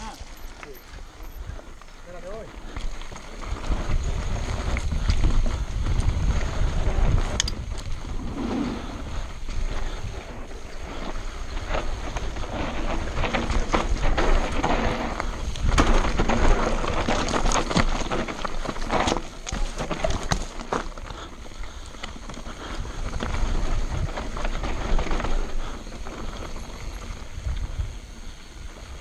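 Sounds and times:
bike rattles and clicks: 0.0s - 29.0s
tyres on dirt and stones: 0.0s - 29.0s
wind buffeting microphone: 2.4s - 29.0s.

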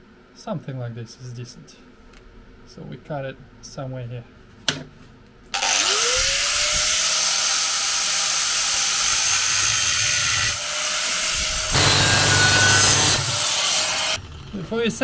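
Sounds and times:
angle grinder cutting metal: 5.6s - 14.2s.

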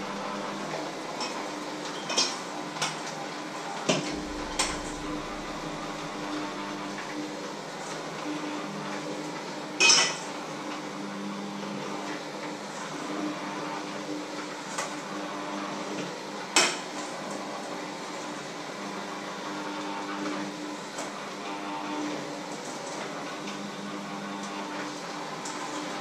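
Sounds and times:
low hum: 0.0s - 0.6s, 4.1s - 7.4s.

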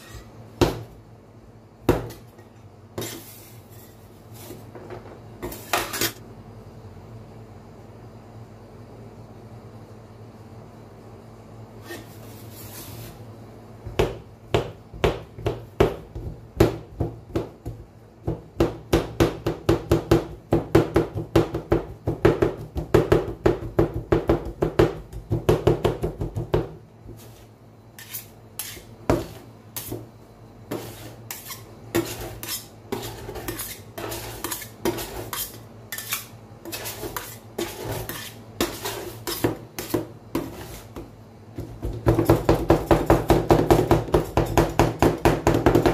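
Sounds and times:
spatula scraping and tapping: 0.0s - 0.4s, 1.9s - 6.2s, 13.9s - 30.1s, 30.7s - 45.9s
metal spatulas chopping on steel plate: 28.0s - 30.0s, 30.7s - 40.8s.

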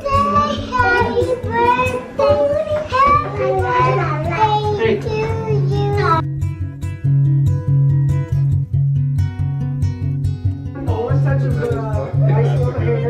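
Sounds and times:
woman singing: 0.0s - 3.2s
child singing: 0.0s - 6.2s
strummed guitar music: 0.0s - 13.0s.

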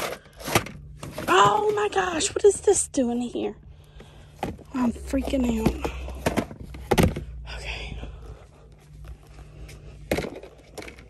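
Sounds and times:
plastic bins clattering: 0.0s - 2.5s, 4.3s - 7.4s, 9.9s - 11.0s.

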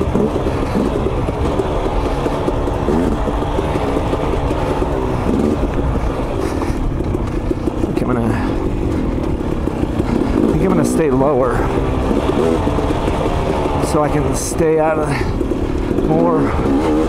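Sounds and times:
dirt bike engine revving: 0.0s - 17.0s.

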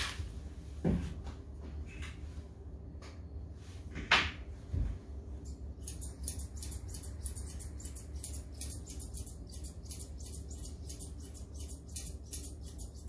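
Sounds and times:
steady low hum: 0.0s - 13.0s
grooming scissors snipping: 5.4s - 13.0s.

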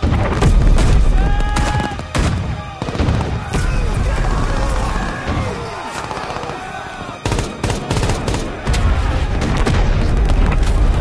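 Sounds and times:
rifle and machine-gun shots: 4.3s - 11.0s.

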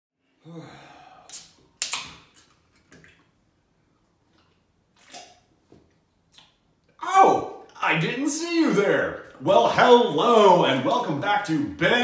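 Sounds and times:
man gulping and slurping: 4.2s - 7.0s.

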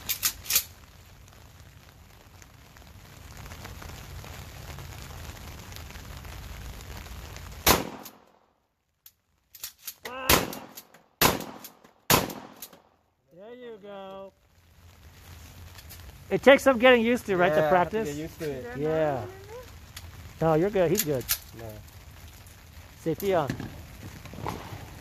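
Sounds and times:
shotgun shots: 7.6s - 8.2s, 10.1s - 12.8s.

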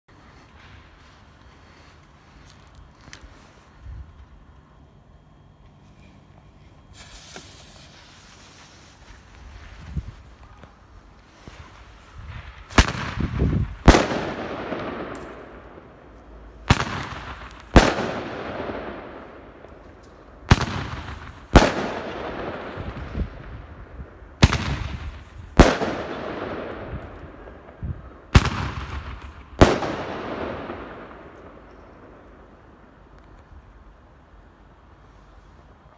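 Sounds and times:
firework launch bang: 6.9s - 8.5s
firework hiss: 6.9s - 10.4s.

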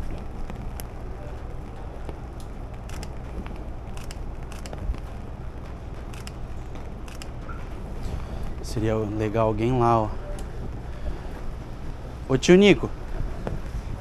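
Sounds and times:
light ticks and crackles: 0.0s - 7.8s
low rumble of wind: 0.0s - 14.0s.

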